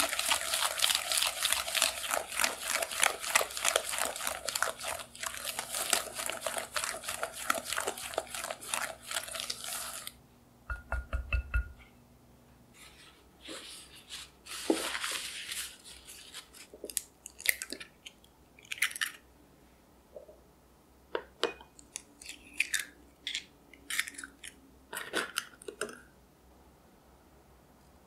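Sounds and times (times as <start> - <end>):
eggshells cracking: 16.8 - 19.2, 21.8 - 25.8.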